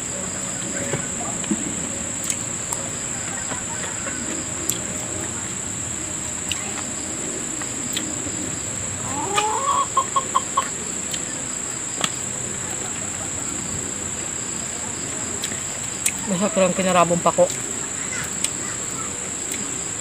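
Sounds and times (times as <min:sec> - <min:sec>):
chicken squawking and clucking: 0:09.0 - 0:10.8.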